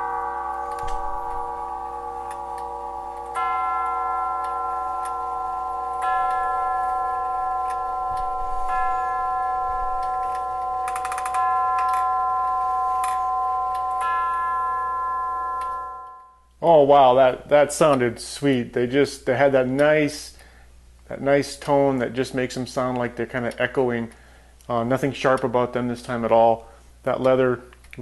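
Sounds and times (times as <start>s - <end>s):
clock tube chimes: 0.0s - 16.4s
clock ticking: 0.6s - 14.5s.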